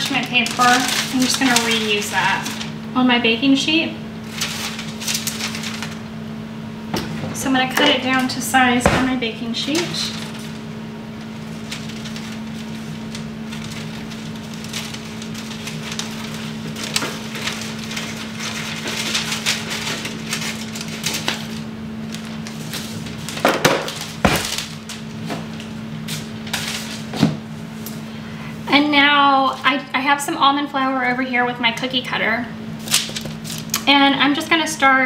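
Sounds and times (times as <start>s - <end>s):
paper crinkling and rustling: 0.0s - 2.8s, 4.2s - 6.0s, 9.6s - 10.6s, 11.2s - 27.4s, 32.8s - 33.9s
steady low hum: 0.0s - 35.0s.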